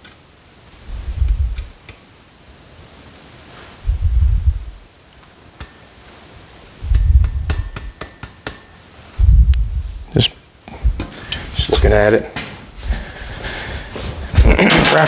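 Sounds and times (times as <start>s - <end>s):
dull low thumps: 0.8s - 1.7s, 3.8s - 4.9s, 6.8s - 7.9s, 9.2s - 10.1s, 10.8s - 11.1s.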